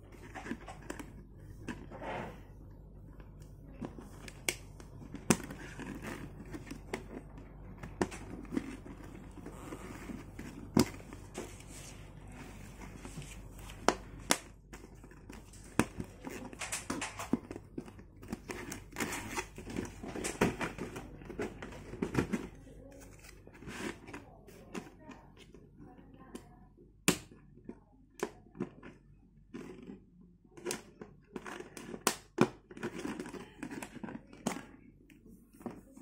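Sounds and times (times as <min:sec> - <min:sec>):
rustling handling noise: 0:00.0 - 0:25.5.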